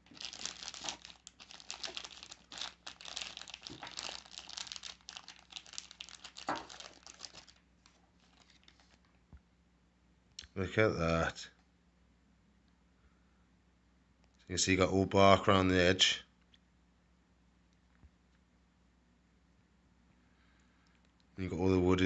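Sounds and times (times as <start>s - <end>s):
plastic bag crinkling: 0.0s - 9.1s.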